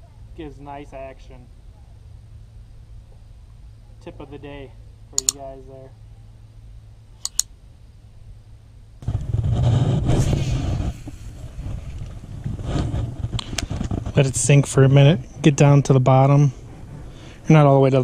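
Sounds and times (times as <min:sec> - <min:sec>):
mouse clicks: 0:05.2 - 0:05.4, 0:07.2 - 0:07.5
wind buffeting microphone: 0:09.0 - 0:18.0.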